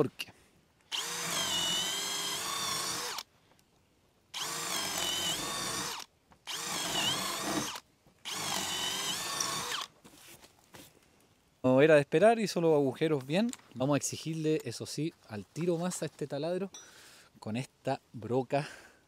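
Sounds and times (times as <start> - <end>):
cordless drill boring into wood: 0.9 - 3.3, 4.4 - 9.9.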